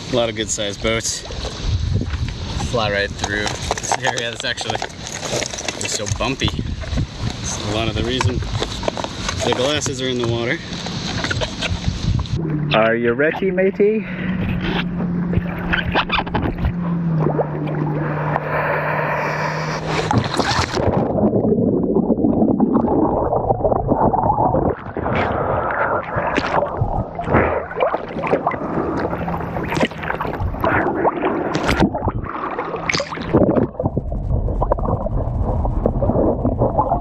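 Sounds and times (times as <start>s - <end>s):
underwater low rumble: 0.0s - 37.0s
water splashing and gurgling: 0.0s - 37.0s.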